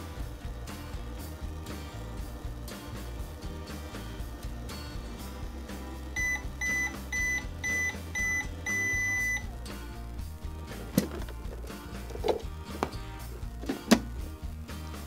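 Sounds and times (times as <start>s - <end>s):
background music: 0.0s - 15.0s
toy microwave electronic beeps: 5.7s - 9.5s.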